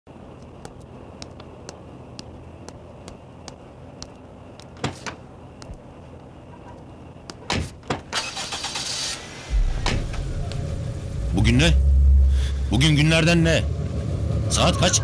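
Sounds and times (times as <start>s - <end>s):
hard-soled footsteps on pavement: 0.1s - 8.1s
deep low rumble: 9.5s - 15.0s.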